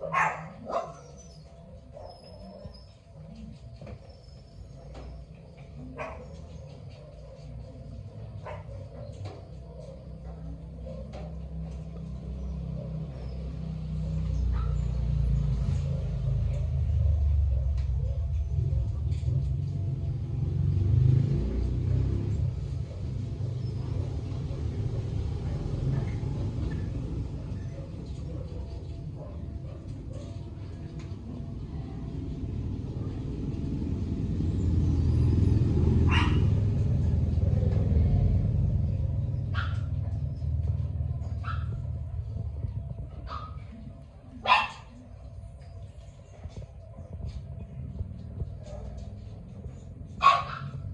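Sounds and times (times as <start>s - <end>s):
dog barking: 0.0s - 2.8s, 5.8s - 11.7s, 12.6s - 18.7s, 27.4s - 30.4s, 35.9s - 37.6s, 38.8s - 42.4s, 43.1s - 45.1s, 50.1s - 50.9s
vehicle engine rumble: 0.0s - 50.9s
low rumble: 25.1s - 50.2s.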